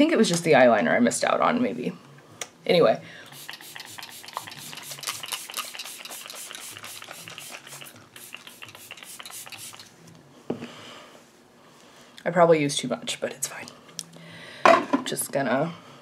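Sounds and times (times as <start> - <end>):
spray bottle spritzing: 3.3 - 10.0.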